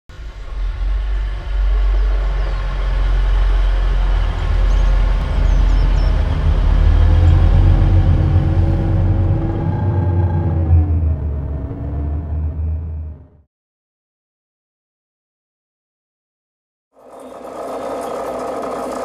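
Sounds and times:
train passing rumble: 0.1s - 13.4s.

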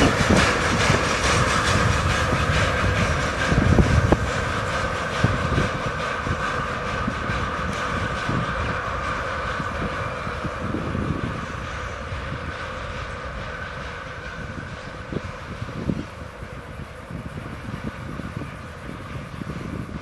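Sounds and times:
train rumble: 0.0s - 20.0s
train wheels knocking on rail joints: 0.0s - 20.0s.

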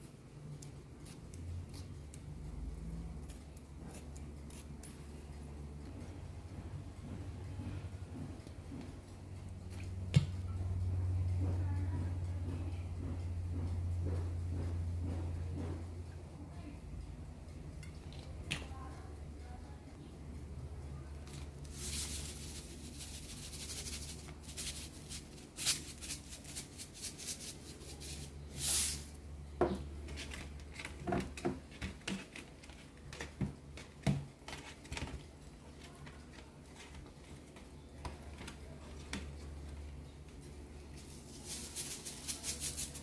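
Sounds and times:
low steady hum: 0.0s - 43.0s
salt pattering on a metal tray: 21.3s - 29.2s, 41.0s - 43.0s.

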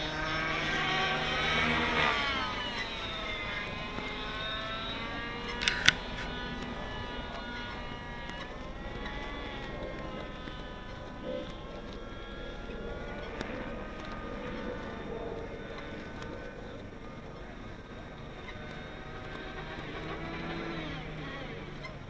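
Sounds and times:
rc helicopter engine whining: 0.0s - 22.0s
sharp clicks: 2.6s - 15.0s.

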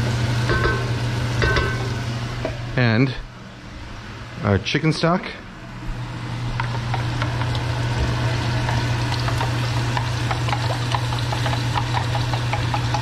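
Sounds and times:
liquid sizzling and bubbling in pot: 6.0s - 13.0s.

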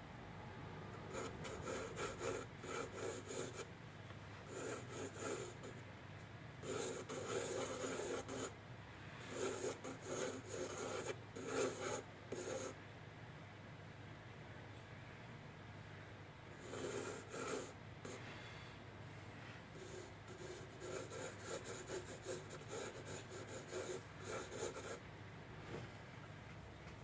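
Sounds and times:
pencil scratching on paper: 1.1s - 3.7s, 4.5s - 5.8s, 6.6s - 8.5s, 9.3s - 12.8s, 16.6s - 18.2s, 19.8s - 25.0s.

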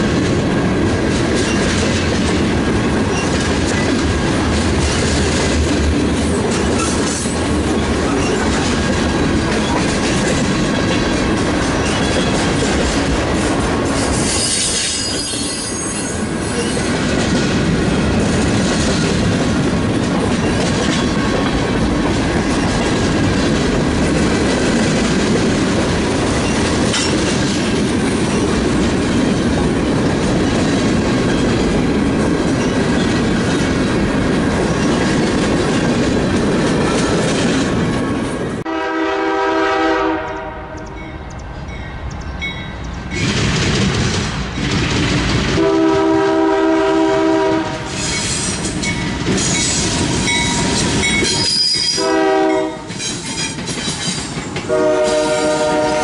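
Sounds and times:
train wheels rumbling on rails: 0.0s - 56.0s
high-pitched wheel squeal: 14.3s - 16.8s, 51.3s - 52.0s
locomotive air horn: 38.6s - 41.0s, 45.6s - 48.0s, 51.5s - 52.9s, 54.7s - 56.0s.

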